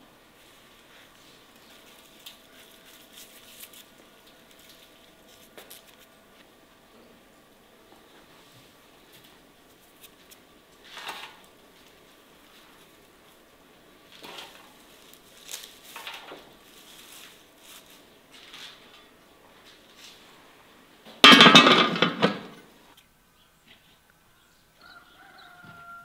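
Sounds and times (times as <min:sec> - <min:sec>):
herbs rustling: 0:00.3 - 0:06.5, 0:08.6 - 0:20.5.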